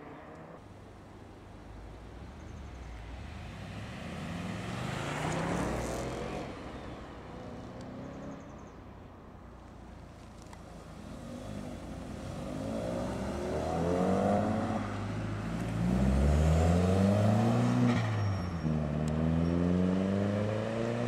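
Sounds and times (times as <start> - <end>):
car accelerating past: 11.1 - 21.0.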